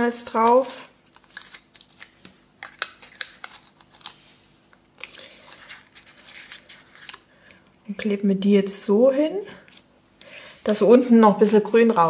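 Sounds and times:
paper crinkling: 1.0s - 7.3s.

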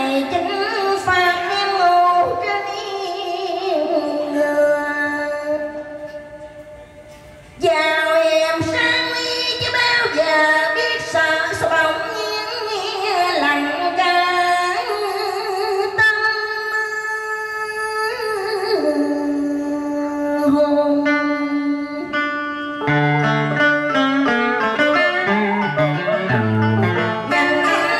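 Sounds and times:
woman singing: 0.0s - 6.3s, 7.6s - 22.6s, 27.2s - 27.9s
string instrument accompaniment: 21.1s - 27.9s.

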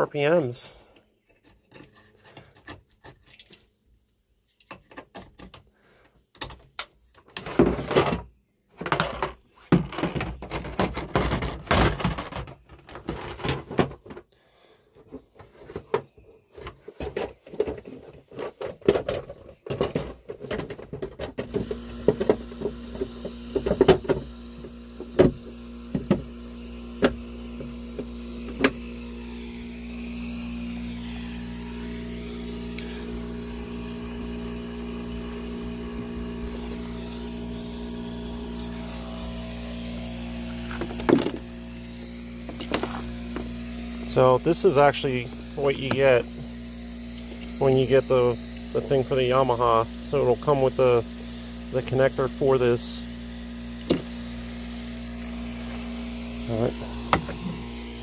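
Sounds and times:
steady low hum: 21.4s - 58.0s.

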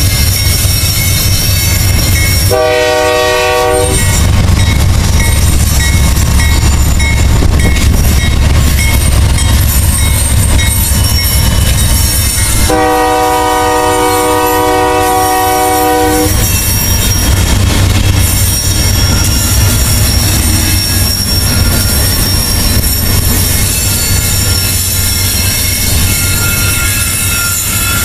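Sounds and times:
diesel locomotives rumbling past: 0.0s - 28.0s
locomotive horn blast: 2.5s - 4.0s, 12.7s - 16.4s.

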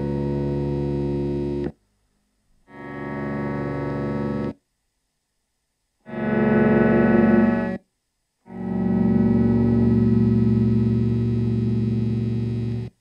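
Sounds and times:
electronic keyboard chords: 0.0s - 1.7s, 8.5s - 12.9s.

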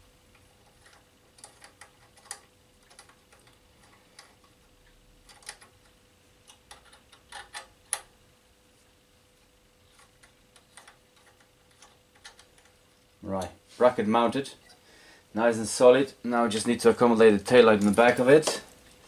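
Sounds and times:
faint steady hum: 0.0s - 19.0s
metallic clicks and taps of bolts: 6.5s - 8.1s.

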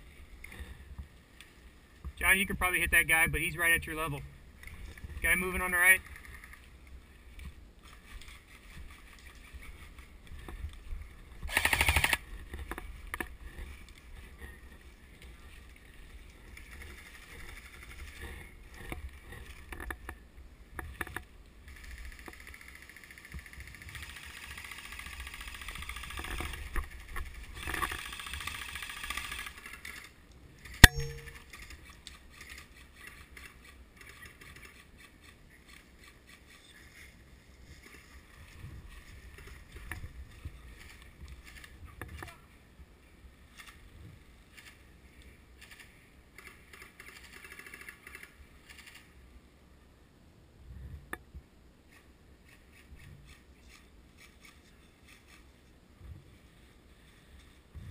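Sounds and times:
airsoft gun full-auto burst: 11.5s - 12.2s, 21.8s - 26.3s, 28.0s - 29.8s.

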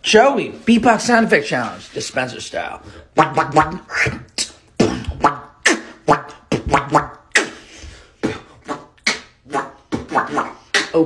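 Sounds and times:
beatboxing: 3.1s - 11.0s.

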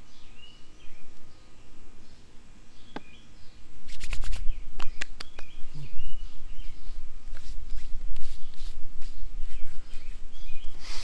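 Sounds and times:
birds chirping: 0.0s - 11.0s
hands patting face: 3.9s - 5.8s, 6.7s - 11.0s.

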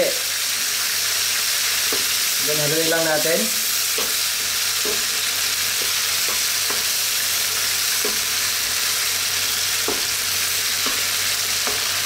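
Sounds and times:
liver sizzling in frying pan: 0.0s - 12.0s
spatula knocking against pan: 4.8s - 5.2s, 5.8s - 7.0s, 8.0s - 8.3s, 9.8s - 10.1s, 10.8s - 11.9s.

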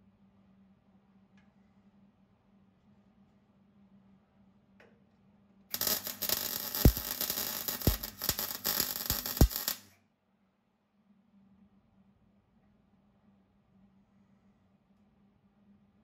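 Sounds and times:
welding arc crackling: 5.7s - 9.8s
sharp welding pops: 5.7s - 9.9s.

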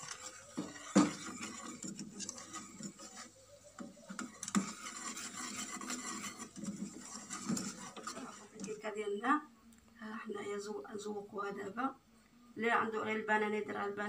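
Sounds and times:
whisk scraping a saucepan: 0.0s - 8.8s.

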